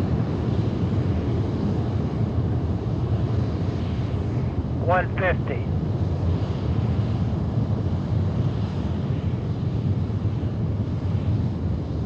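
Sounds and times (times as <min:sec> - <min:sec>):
distant rocket engine rumble: 0:00.1 - 0:12.0.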